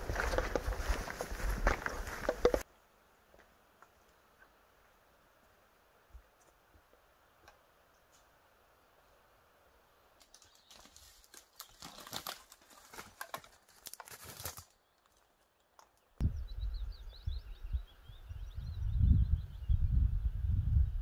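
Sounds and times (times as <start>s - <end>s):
footsteps crunching on twigs: 0.0s - 2.6s, 10.2s - 15.5s.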